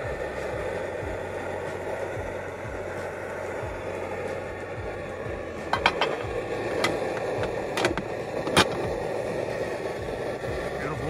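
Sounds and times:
steady rushing noise: 0:00.0 - 0:11.0
metal pot lid clinking: 0:05.6 - 0:08.9.

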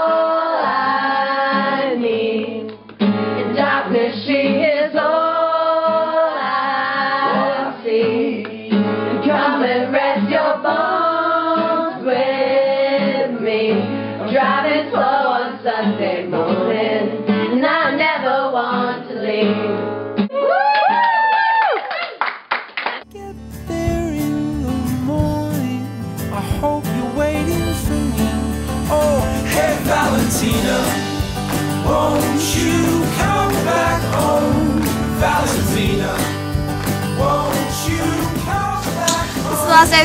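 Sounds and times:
girls singing together: 0:00.0 - 0:02.7, 0:03.4 - 0:19.7, 0:31.8 - 0:36.4
guitar accompaniment: 0:00.8 - 0:04.7, 0:07.0 - 0:10.5, 0:18.7 - 0:20.3, 0:23.0 - 0:40.0
music recording: 0:23.0 - 0:40.0.

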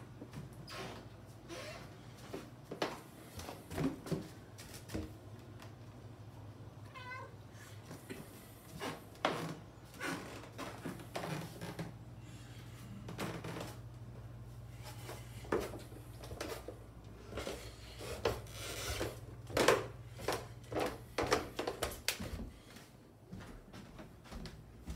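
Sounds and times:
steady low hum: 0:00.0 - 0:24.9
footsteps on wooden stairs: 0:02.2 - 0:05.8, 0:14.8 - 0:24.9.

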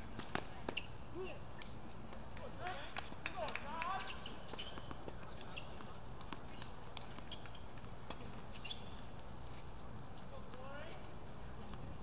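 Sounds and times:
tennis balls struck and bouncing: 0:00.1 - 0:00.9, 0:01.6 - 0:08.8
faint short squeaks: 0:08.5 - 0:09.1.

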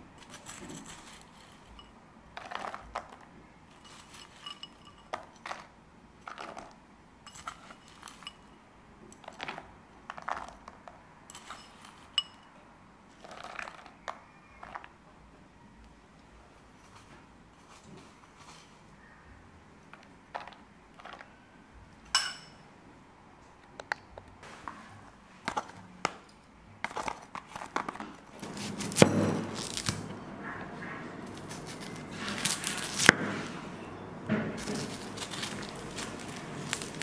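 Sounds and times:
onion skin crackling and tearing: 0:28.4 - 0:30.1, 0:31.2 - 0:33.2, 0:34.6 - 0:37.0.

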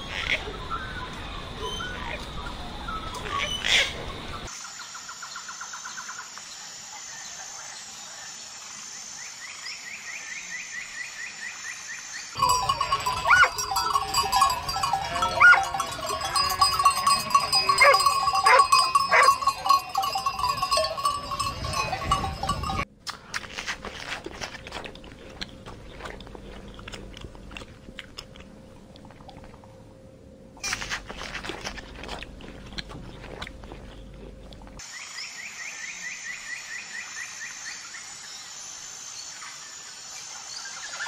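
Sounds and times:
rapid trills: 0:12.4 - 0:22.9
steady high hum: 0:24.9 - 0:31.2.

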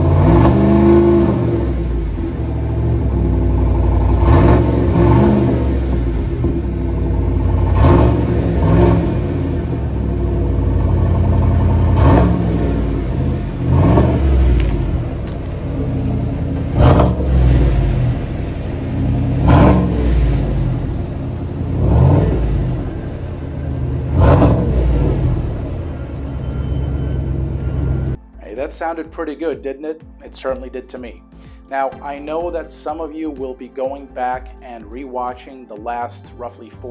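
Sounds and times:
engine idling and revving: 0:00.0 - 0:28.2.

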